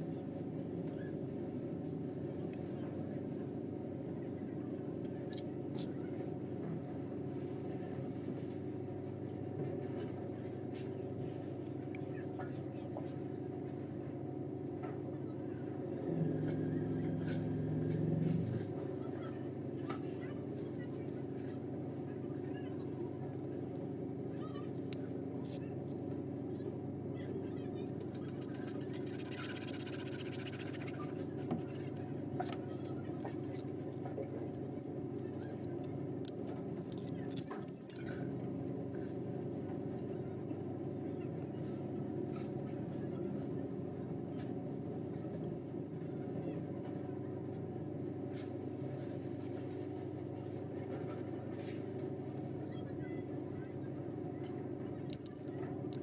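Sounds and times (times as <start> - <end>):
low mechanical hum: 0.0 - 56.0
scratchy scraping: 27.8 - 31.9.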